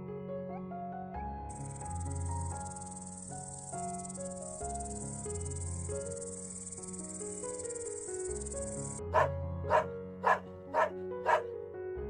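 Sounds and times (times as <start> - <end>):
soft background music: 0.0 - 12.0
bush-cricket buzzing: 1.5 - 9.0
dog barking: 9.1 - 11.5.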